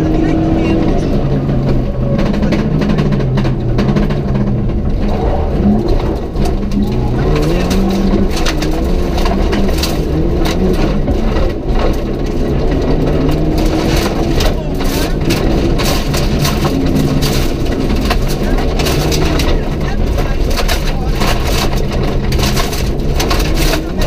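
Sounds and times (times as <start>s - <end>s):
gravel rattling against car: 0.0s - 24.0s
rally car engine revving: 0.0s - 24.0s.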